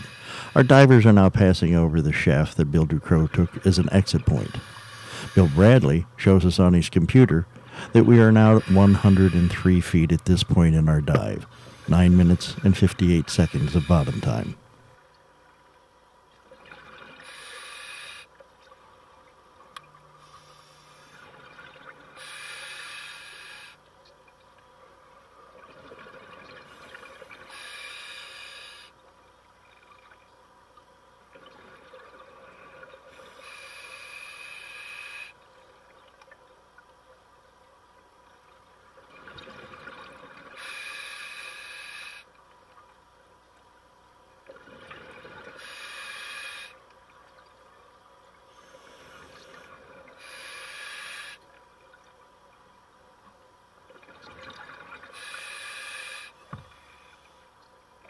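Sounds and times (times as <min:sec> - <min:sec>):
diver inhaling through regulator: 0:00.0 - 0:00.8, 0:04.4 - 0:05.8, 0:07.6 - 0:09.6, 0:17.2 - 0:18.3, 0:20.2 - 0:21.2, 0:22.2 - 0:23.8, 0:26.7 - 0:29.0, 0:33.2 - 0:35.4, 0:40.6 - 0:42.3, 0:45.6 - 0:46.8, 0:48.5 - 0:51.4, 0:55.1 - 0:57.3
diver exhaling bubbling hiss: 0:17.2 - 0:18.3, 0:40.6 - 0:42.3, 0:45.5 - 0:46.8, 0:48.6 - 0:51.4, 0:55.1 - 0:57.1.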